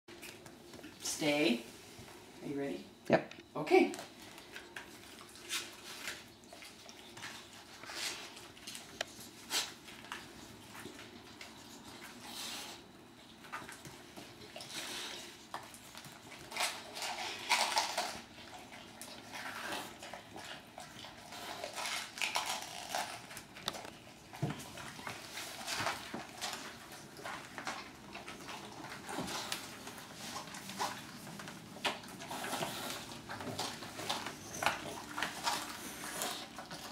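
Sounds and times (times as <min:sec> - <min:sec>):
dog biting cabbage: 0:14.5 - 0:36.9
cabbage scraping on tiled floor: 0:32.2 - 0:36.9.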